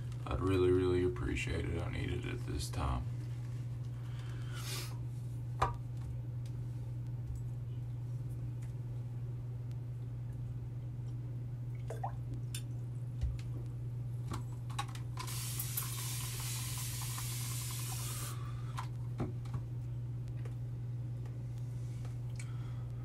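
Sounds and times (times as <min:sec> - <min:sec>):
steady low hum: 0:00.0 - 0:23.0
sink faucet running: 0:15.2 - 0:18.4.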